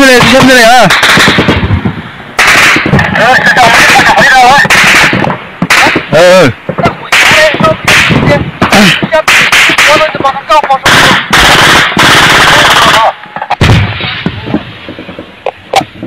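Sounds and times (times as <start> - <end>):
automatic gunfire bursts: 0.0 - 1.7, 2.4 - 3.0, 4.6 - 6.0, 10.8 - 13.1.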